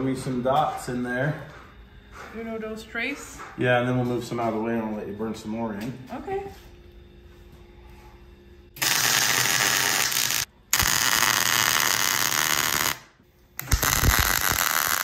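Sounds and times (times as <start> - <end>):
welder arc crackling: 8.8 - 15.0.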